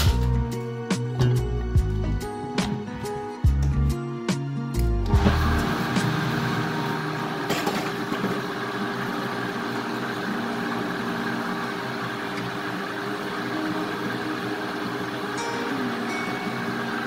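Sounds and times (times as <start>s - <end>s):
blender motor running: 5.1s - 17.0s.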